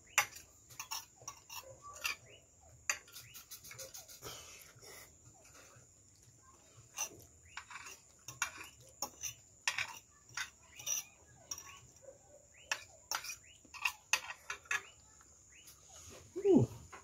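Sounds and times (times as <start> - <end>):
forks clicking on plates: 7.0 - 11.9.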